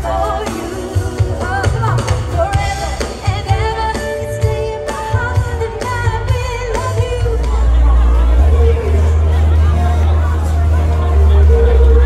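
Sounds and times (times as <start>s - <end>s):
woman singing: 0.0s - 9.4s
live band playing pop music: 0.0s - 12.0s.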